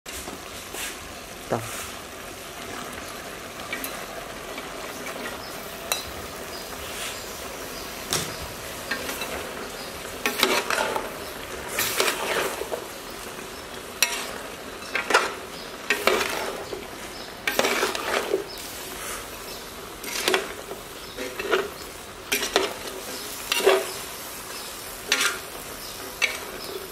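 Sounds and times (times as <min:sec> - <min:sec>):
meat and vegetables sizzling: 0:00.1 - 0:26.9
ladle scraping metal pot: 0:11.7 - 0:12.8, 0:14.0 - 0:16.8, 0:17.5 - 0:19.3, 0:20.0 - 0:20.6.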